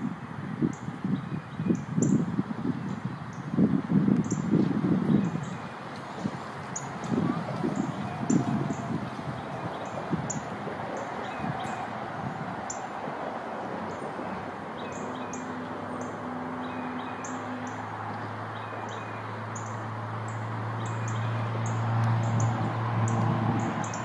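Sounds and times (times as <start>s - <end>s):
songbirds chip calls: 6.7s - 11.9s, 14.8s - 24.0s.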